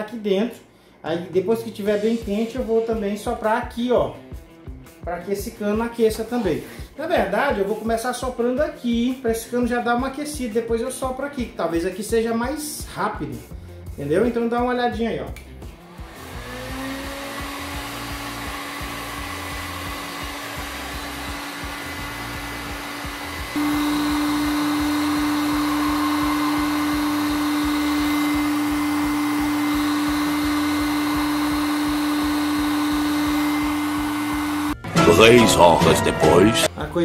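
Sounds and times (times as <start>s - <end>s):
heat gun blowing air: 15.8s - 34.8s.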